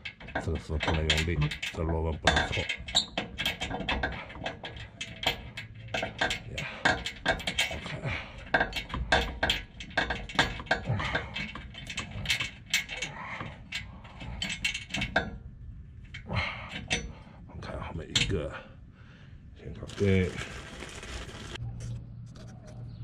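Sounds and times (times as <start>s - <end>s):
metallic clicks of tools and bolts: 0.0s - 17.2s.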